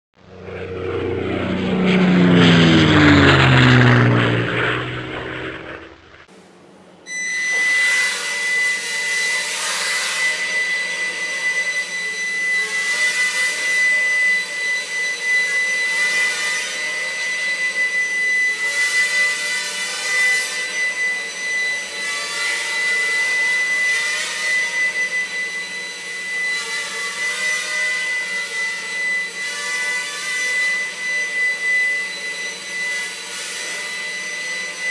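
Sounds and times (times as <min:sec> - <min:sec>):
drone rotors whining: 0:00.2 - 0:06.3, 0:20.5 - 0:34.9
whoosh with sliding pitch: 0:00.2 - 0:06.3.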